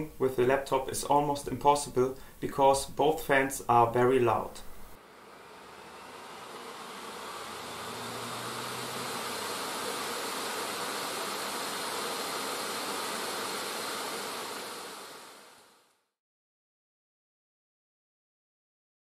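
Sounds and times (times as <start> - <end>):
faint high whine: 4.5 - 16.0
laptop fans whooshing: 4.9 - 15.9.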